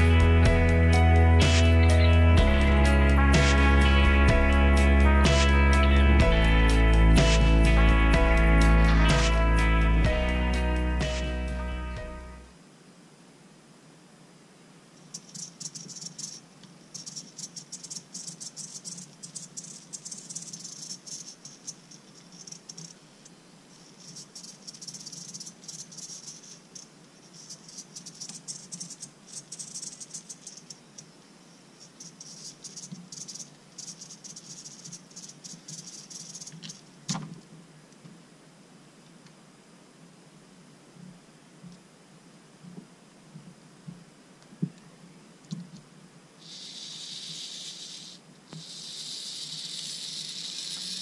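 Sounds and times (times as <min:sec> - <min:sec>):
servo motor whirring: 0:46.4 - 0:51.0.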